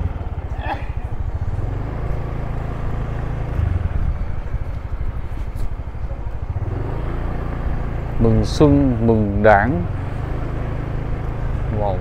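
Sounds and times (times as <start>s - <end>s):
vehicle road noise rumble: 0.0s - 12.0s.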